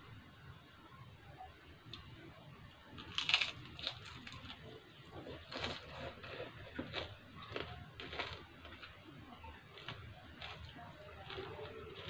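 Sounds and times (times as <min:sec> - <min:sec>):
woman chewing food: 0:02.9 - 0:12.0.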